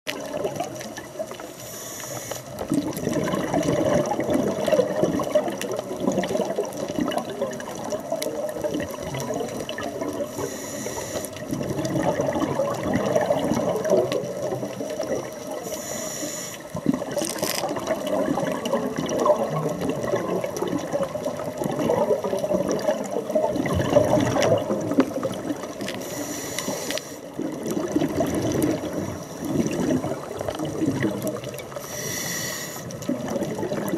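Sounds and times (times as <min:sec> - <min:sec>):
bubbles gurgling underwater: 0:00.1 - 0:01.5, 0:02.5 - 0:10.6, 0:11.3 - 0:15.8, 0:16.6 - 0:32.2, 0:32.8 - 0:33.9
regulator hissing on inhale: 0:01.4 - 0:02.6, 0:10.3 - 0:11.4, 0:15.6 - 0:16.8, 0:25.9 - 0:27.3, 0:31.7 - 0:33.0.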